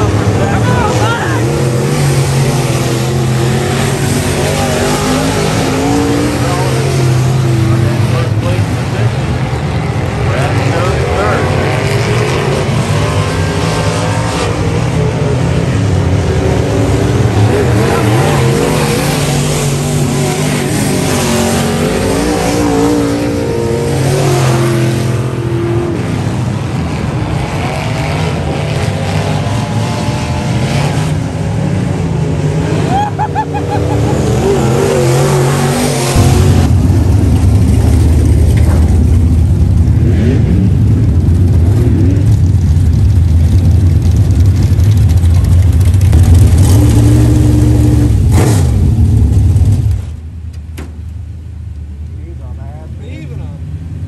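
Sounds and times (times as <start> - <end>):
race car engines accelerating: 0.0 - 54.0
race car idling close: 36.2 - 53.6.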